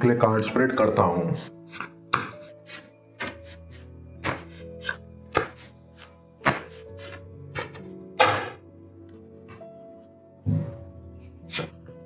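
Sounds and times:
soft background music: 0:00.0 - 0:12.0.

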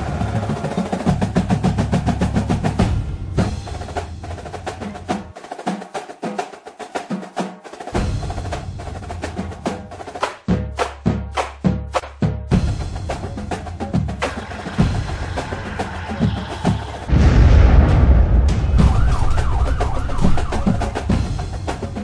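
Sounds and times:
fast driving percussion music: 0:00.0 - 0:17.4, 0:18.6 - 0:22.0
deep bass: 0:17.1 - 0:21.6.

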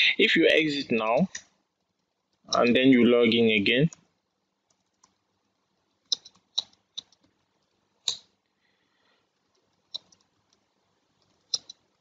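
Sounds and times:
computer keyboard keystrokes: 0:06.1 - 0:07.4, 0:09.5 - 0:10.6, 0:11.2 - 0:11.9.

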